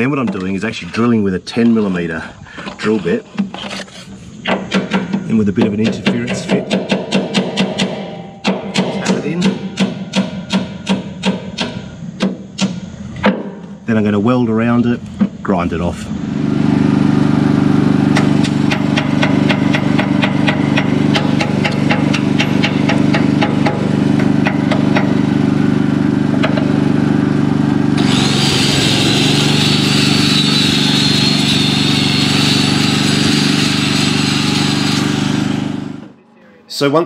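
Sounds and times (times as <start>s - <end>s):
hammer tapping on steel: 4.5s - 12.8s, 18.2s - 25.2s
steady engine hum: 13.9s - 36.2s
angle grinder grinding metal: 28.0s - 36.2s.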